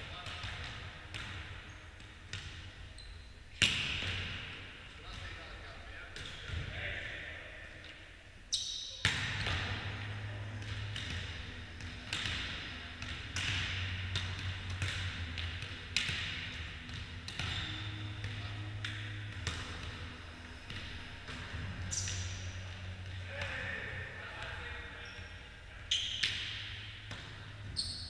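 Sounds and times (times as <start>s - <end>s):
hands slapping volleyball: 18.8s - 20.0s.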